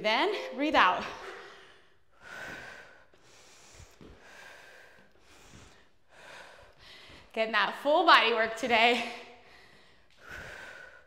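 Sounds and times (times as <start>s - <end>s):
woman breathing hard: 1.0s - 7.4s, 9.1s - 11.0s.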